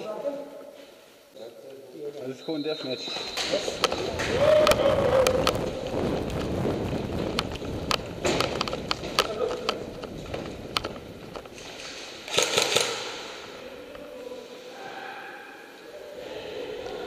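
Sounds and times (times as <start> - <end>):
sharp clicks: 12.3 - 13.3.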